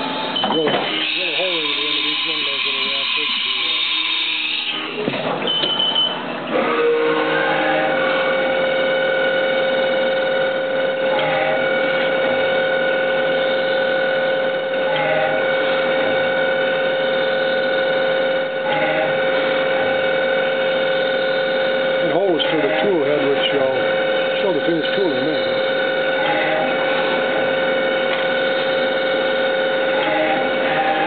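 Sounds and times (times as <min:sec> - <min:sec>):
machine whirs sweeping in pitch: 0:00.0 - 0:05.0
spindle high whine: 0:00.0 - 0:31.0.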